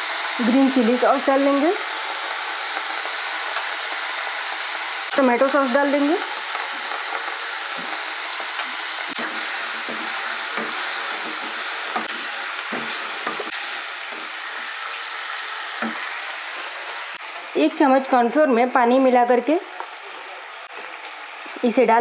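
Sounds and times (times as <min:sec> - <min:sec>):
vegetables sizzling in oil: 0:00.0 - 0:22.0
wooden spatula scraping a pan: 0:06.6 - 0:13.5.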